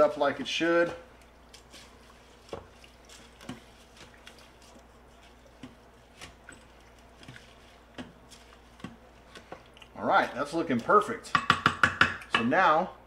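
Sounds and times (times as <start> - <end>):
spoon swishing rice and liquid: 0.0 - 11.1
spoon tapping metal pot: 11.3 - 12.5.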